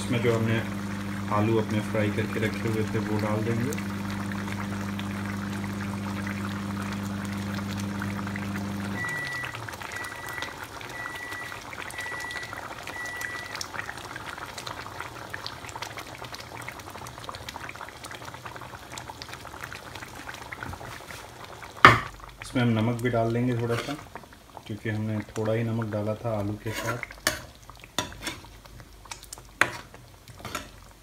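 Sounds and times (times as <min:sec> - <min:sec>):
electric hum winding down: 0:00.0 - 0:10.4
curry bubbling in a pan: 0:00.0 - 0:31.0.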